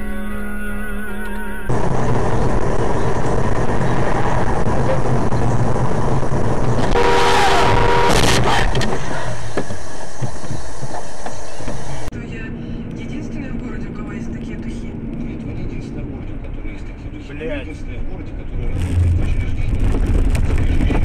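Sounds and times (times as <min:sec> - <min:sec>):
car road and engine noise: 0:01.1 - 0:21.0
loud burst of noise: 0:01.7 - 0:10.1, 0:18.7 - 0:21.0
car horn: 0:06.8 - 0:08.8.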